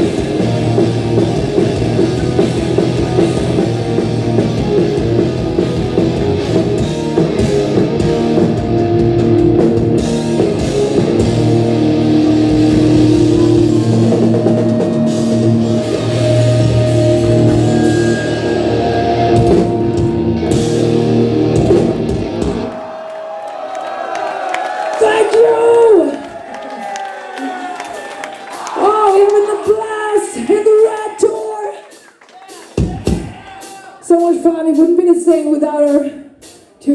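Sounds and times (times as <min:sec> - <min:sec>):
live hard rock band: 0:00.0 - 0:22.7.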